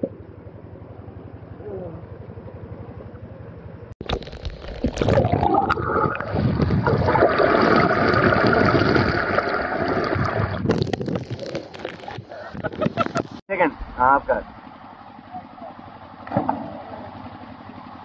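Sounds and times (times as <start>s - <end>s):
muffled water: 0.0s - 18.0s
water rushing and splashing: 4.0s - 12.3s.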